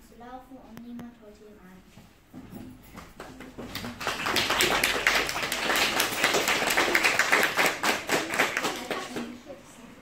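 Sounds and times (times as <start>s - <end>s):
small group applauding: 3.0s - 9.5s.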